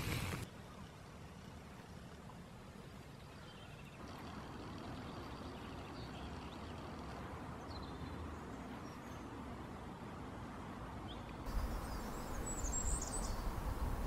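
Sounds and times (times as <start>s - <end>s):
faint bird chirps: 11.5s - 14.0s
wind on microphone: 11.5s - 14.0s.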